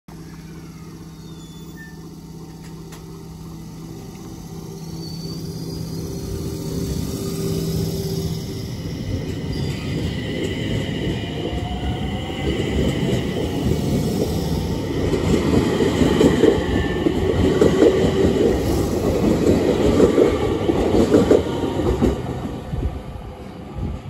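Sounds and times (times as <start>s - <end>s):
traction motor whine rising: 0.1s - 19.4s
electric train hum: 0.1s - 24.0s
train wheels rumbling: 0.1s - 24.0s.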